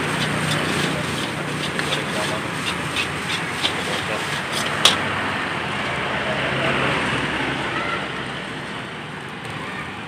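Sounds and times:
rice frying in a wok: 0:00.0 - 0:05.1
gas burner roaring: 0:00.0 - 0:09.6
road traffic: 0:00.0 - 0:10.0.

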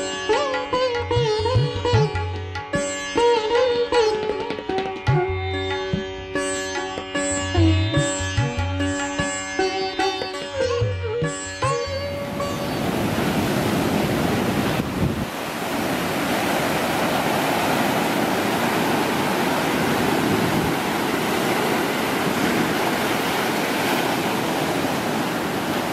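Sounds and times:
waves breaking over rocks: 0:12.3 - 0:25.9.

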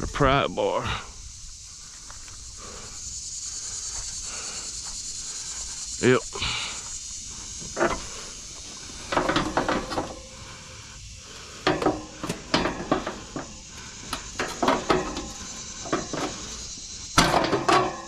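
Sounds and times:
pry bar clanking on metal grille: 0:07.8 - 0:08.2, 0:09.0 - 0:10.4, 0:11.6 - 0:18.0.

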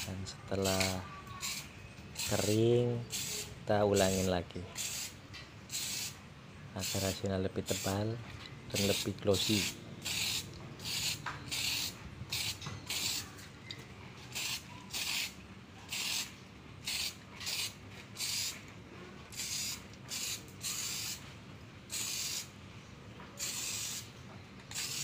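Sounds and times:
aerosol spray can hissing: 0:00.7 - 0:06.2, 0:06.8 - 0:08.0, 0:08.8 - 0:13.2, 0:14.3 - 0:18.6, 0:19.3 - 0:21.2, 0:21.9 - 0:22.5, 0:23.4 - 0:24.1, 0:24.7 - 0:25.0.

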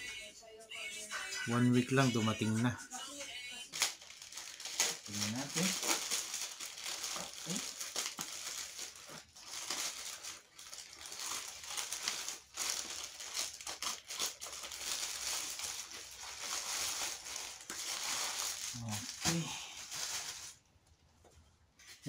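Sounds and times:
plastic bag crinkling: 0:03.4 - 0:20.8
scissors cutting plastic: 0:04.6 - 0:06.4.

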